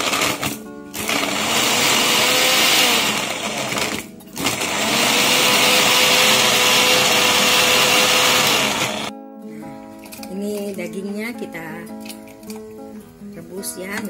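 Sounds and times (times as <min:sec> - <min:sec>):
blender running: 0:00.0 - 0:09.1.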